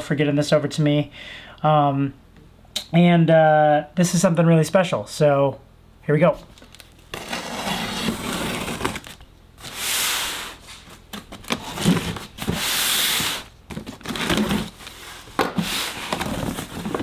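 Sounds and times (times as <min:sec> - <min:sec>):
knife cutting packing tape: 0:07.1 - 0:14.8.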